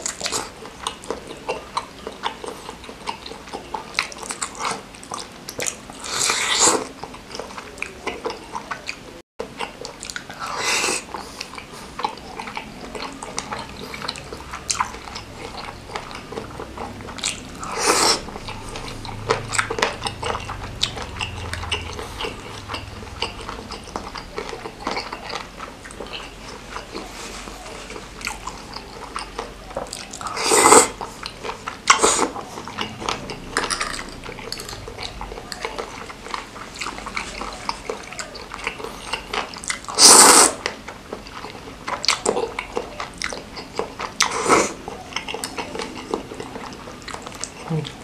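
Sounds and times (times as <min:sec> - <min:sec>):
wet chewing and lip-smacking: 0:00.0 - 0:48.0
loud slurps: 0:16.5 - 0:24.2, 0:30.2 - 0:31.3, 0:31.9 - 0:35.2, 0:38.8 - 0:40.7.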